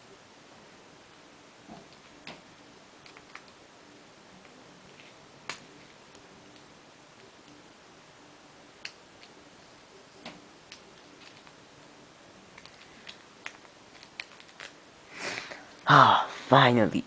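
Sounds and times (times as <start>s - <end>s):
packaging rustle: 12.6s - 14.8s.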